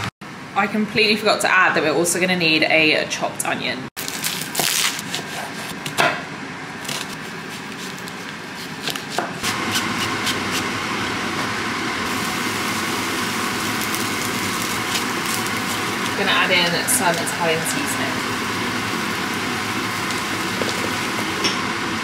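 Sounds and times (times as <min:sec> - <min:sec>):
onion sizzling in frying pan: 0:09.4 - 0:22.0.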